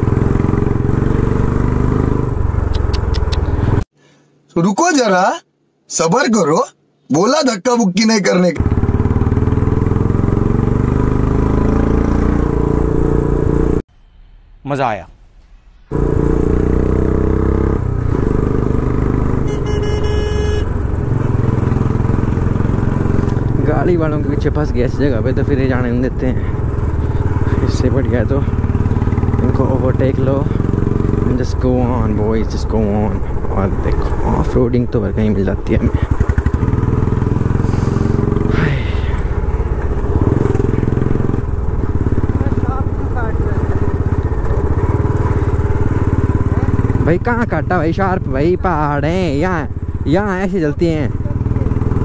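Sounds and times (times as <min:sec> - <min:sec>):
motorcycle engine running: 0:00.0 - 0:03.9, 0:08.6 - 0:13.8, 0:15.9 - 0:52.0
vehicle horn: 0:19.4 - 0:20.9.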